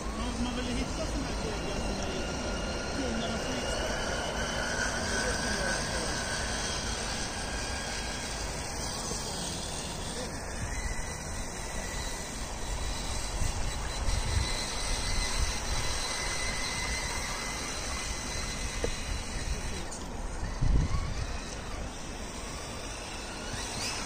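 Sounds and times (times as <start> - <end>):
electric motor whine: 0.0 - 24.0
noisy rumble: 0.0 - 24.0.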